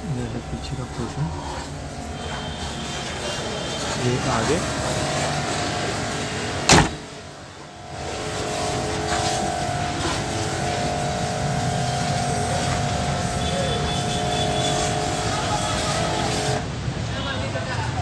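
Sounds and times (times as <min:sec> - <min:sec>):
steady background noise: 0:00.0 - 0:18.0
van door slamming: 0:06.6 - 0:07.2.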